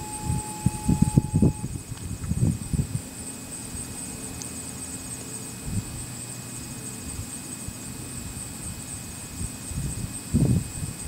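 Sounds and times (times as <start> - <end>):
wind rumbling on microphone: 0.0 - 3.2, 5.6 - 6.2, 8.2 - 11.0
high-pitched insect buzz: 0.0 - 11.0.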